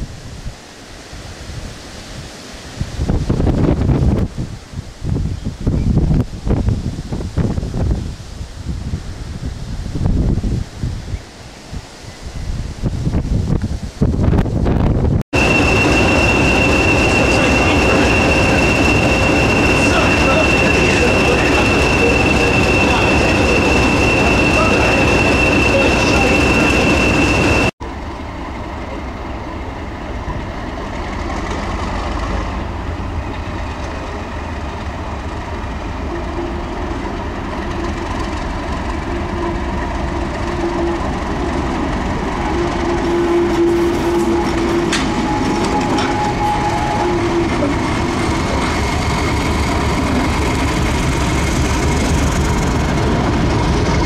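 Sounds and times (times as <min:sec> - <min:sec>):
diesel locomotive engine: 0:14.2 - 0:54.0
steady high whistle: 0:15.4 - 0:27.8, 0:42.4 - 0:47.7.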